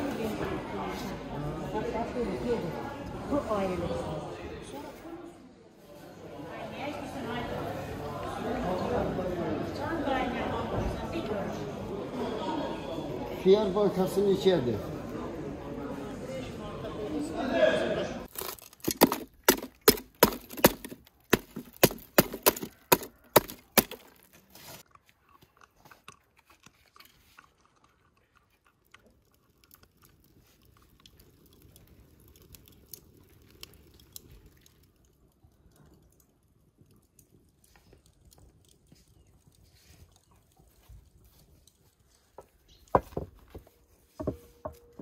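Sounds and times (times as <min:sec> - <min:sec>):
fire crackling: 0:18.2 - 0:24.9, 0:27.6 - 0:45.0.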